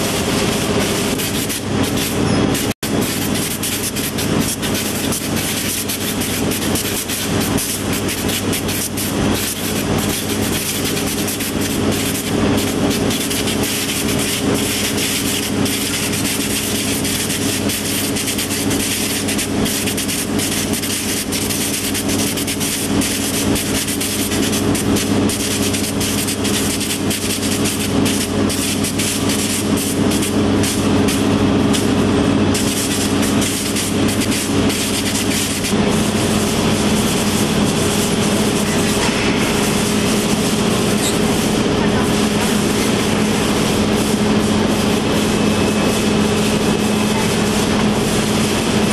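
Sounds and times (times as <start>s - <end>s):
conveyor motors humming: 22.8s - 48.9s.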